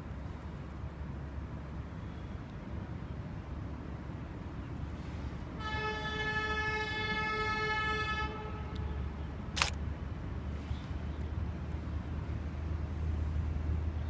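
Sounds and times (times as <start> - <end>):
low train rumble: 0.0 - 14.0
locomotive air horn blast: 5.6 - 9.1
sharp click: 9.6 - 9.8.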